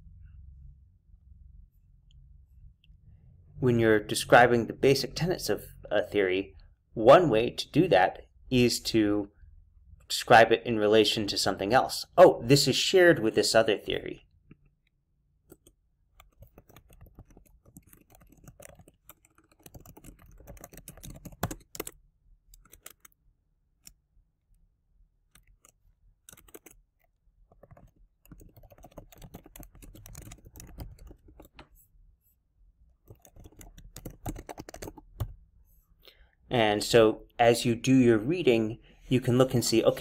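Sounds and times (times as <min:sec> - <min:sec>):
computer keyboard typing: 0:15.5 - 0:23.2, 0:25.3 - 0:31.7, 0:33.0 - 0:35.4.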